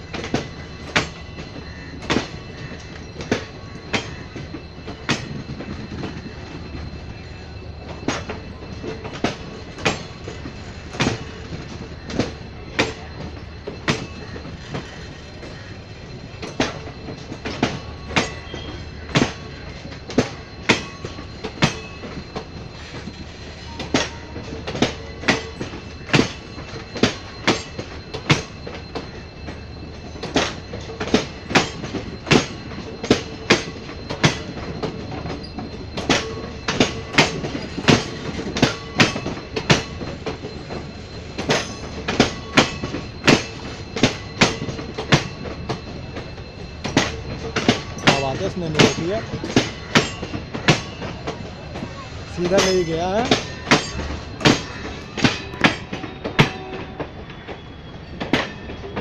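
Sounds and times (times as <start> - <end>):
train rumble: 0.0 - 59.0
train wheels clicking over rail joints: 0.0 - 59.0.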